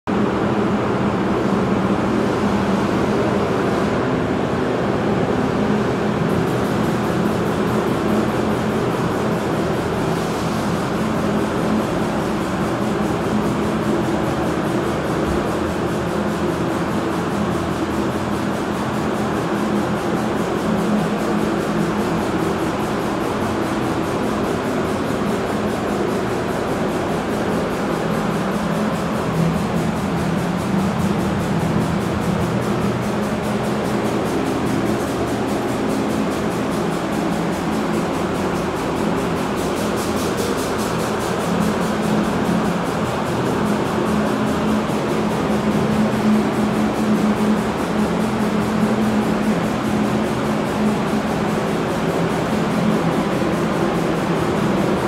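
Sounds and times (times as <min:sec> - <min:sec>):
low fan hum: 0:00.1 - 0:55.0
ventilation air rushing: 0:00.1 - 0:55.0.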